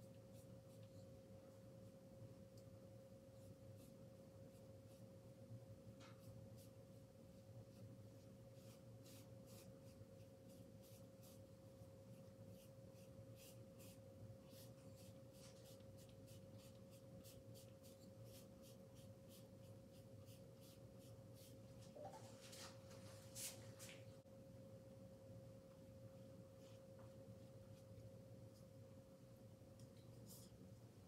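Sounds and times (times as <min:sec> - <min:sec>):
faint steady hum: 0:00.0 - 0:31.0
paintbrush scratching canvas: 0:06.1 - 0:22.1.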